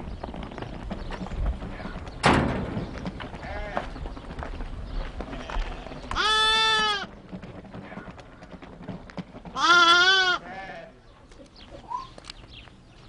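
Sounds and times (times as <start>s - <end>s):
lamb bleating: 5.4s - 7.1s, 9.6s - 11.0s.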